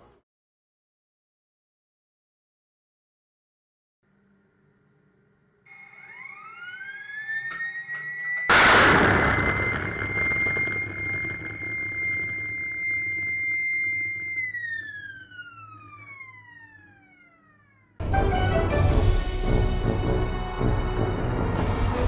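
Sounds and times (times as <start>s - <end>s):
high whine: 4.1s - 18.0s
rocket launch blast: 8.5s - 14.2s.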